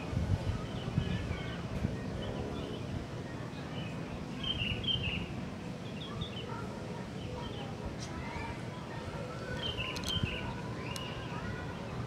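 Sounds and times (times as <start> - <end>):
small birds chirping: 9.3 - 11.8.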